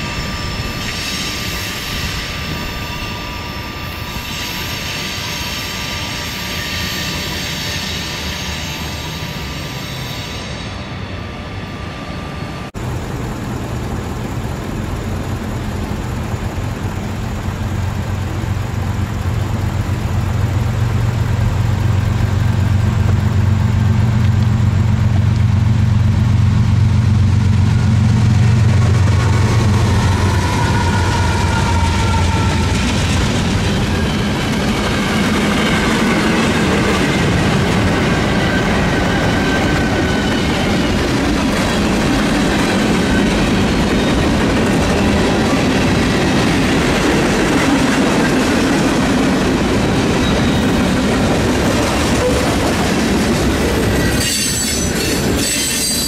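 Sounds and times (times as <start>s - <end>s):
diesel locomotive engine drone: 0.0s - 56.0s
high whine from train wheels: 0.0s - 56.0s
wheels clattering on rail joints: 28.0s - 56.0s.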